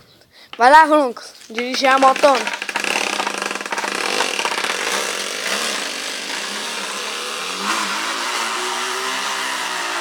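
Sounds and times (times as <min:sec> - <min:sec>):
bottle rattling against bicycle spokes: 0:01.3 - 0:04.7.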